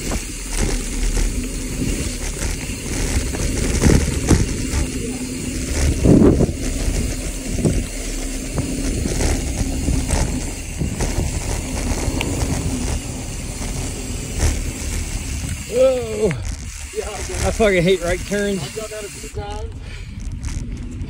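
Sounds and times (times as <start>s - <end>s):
wind on microphone: 0.0s - 18.5s
bike rattling over bumps: 0.0s - 21.0s
tyres rolling over dirt: 0.0s - 21.0s.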